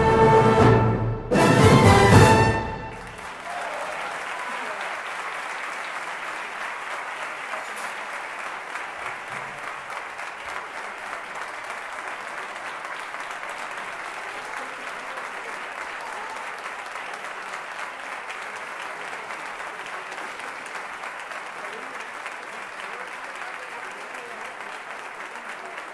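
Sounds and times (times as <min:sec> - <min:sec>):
audience clapping: 0:01.4 - 0:25.9.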